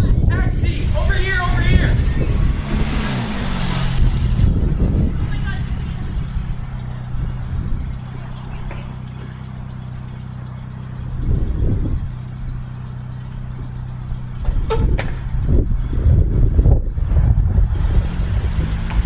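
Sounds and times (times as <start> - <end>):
car engine idling: 0.0 - 19.0
car door shutting: 14.4 - 15.3.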